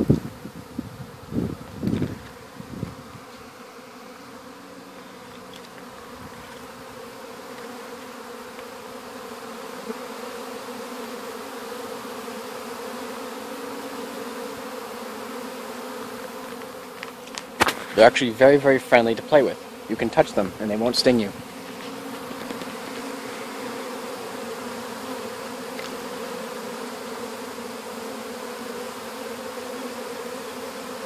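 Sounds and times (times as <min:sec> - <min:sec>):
bee swarm buzzing: 0:00.0 - 0:31.0.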